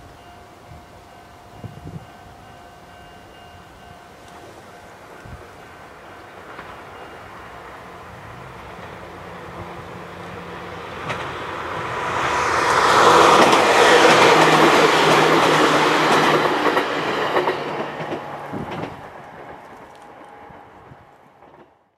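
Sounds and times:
train wheels rumbling over rail joints: 4.3s - 21.8s.

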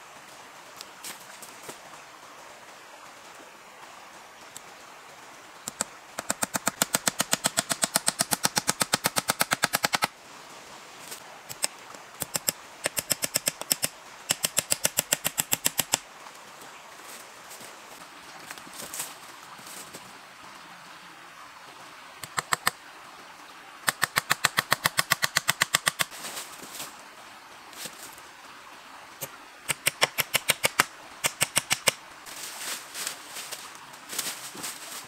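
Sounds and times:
rapid sharp knocks: 6.2s - 10.1s.

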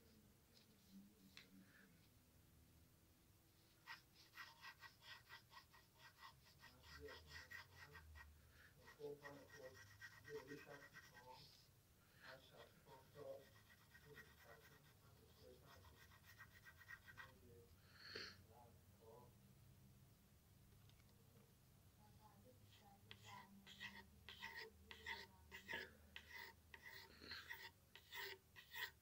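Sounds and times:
pencil scratching on paper: 3.7s - 11.6s, 12.2s - 17.4s, 22.7s - 29.0s.

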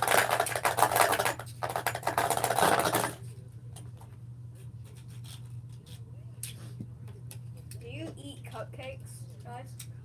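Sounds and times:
spinning tops clattering and grinding: 0.0s - 3.2s.

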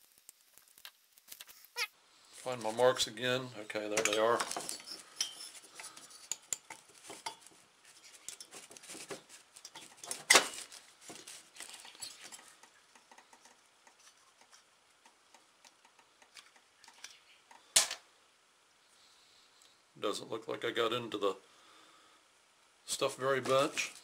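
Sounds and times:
plastic bag crinkling: 6.8s - 12.6s.

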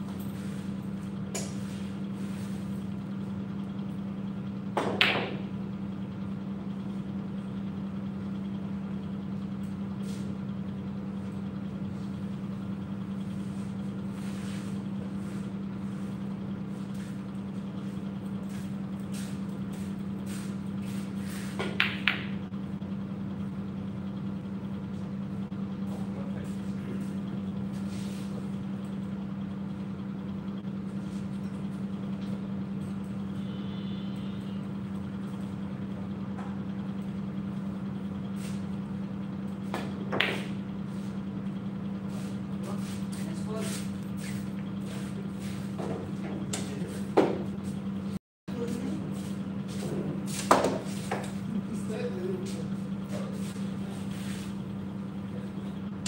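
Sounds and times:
steady low hum: 0.0s - 56.0s
pool balls clacking: 21.6s - 22.5s, 39.8s - 40.6s.

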